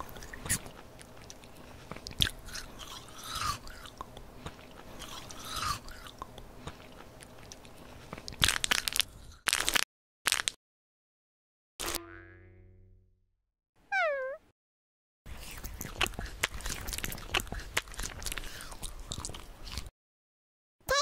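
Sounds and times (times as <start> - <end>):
chewing ice cream bar: 0.0 - 9.8, 15.3 - 19.9
loud crisp crunches: 8.4 - 10.6.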